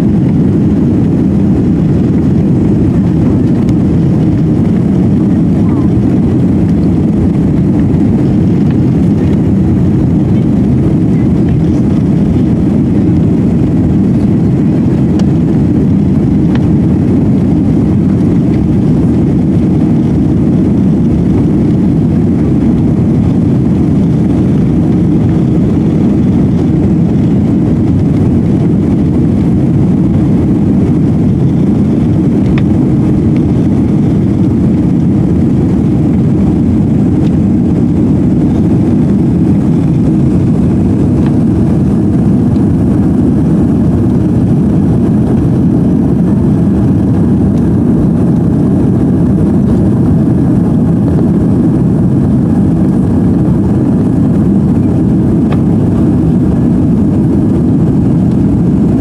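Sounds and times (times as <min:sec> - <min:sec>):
jet engines roaring: 0:00.0 - 0:59.0
rushing air: 0:00.0 - 0:59.0.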